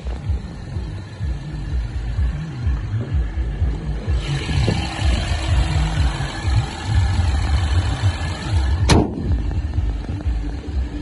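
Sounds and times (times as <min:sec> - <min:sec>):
car engine idling: 0:00.0 - 0:11.0
wind on microphone: 0:02.1 - 0:11.0
car bonnet slamming shut: 0:08.9 - 0:09.3.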